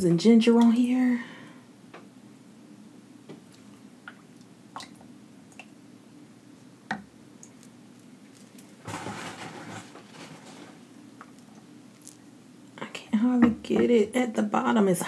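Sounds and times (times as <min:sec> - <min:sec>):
crackling rustle: 0:07.5 - 0:12.3.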